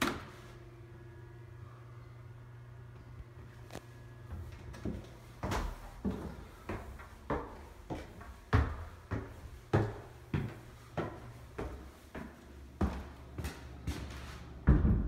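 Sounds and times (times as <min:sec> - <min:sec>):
footsteps on wooden stairs: 0:04.3 - 0:15.0.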